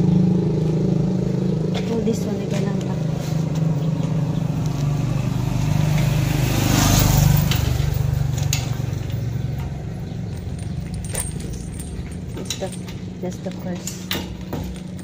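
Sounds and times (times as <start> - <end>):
vehicle engine passing: 0.0 - 15.0
chain and padlock clicks: 8.5 - 15.0.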